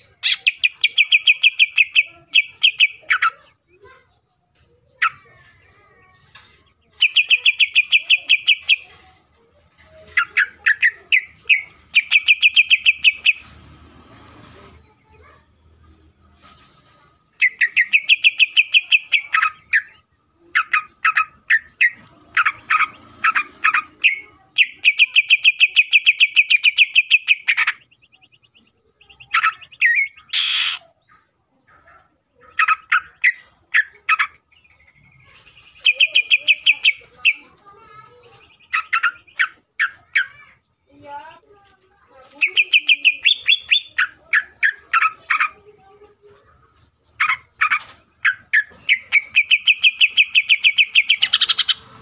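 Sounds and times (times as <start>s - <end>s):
harsh buzzy bird call: 29.8s - 30.8s.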